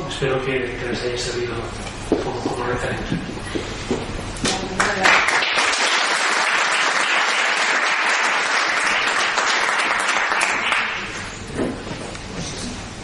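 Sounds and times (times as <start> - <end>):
audience applauding: 4.8 - 11.3.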